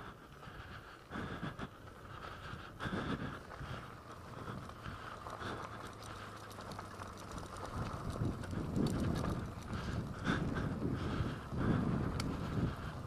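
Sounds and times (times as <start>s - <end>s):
tyres crunching over gravel: 3.3s - 11.0s
motorcycle chain rattling and clicking: 3.7s - 11.3s.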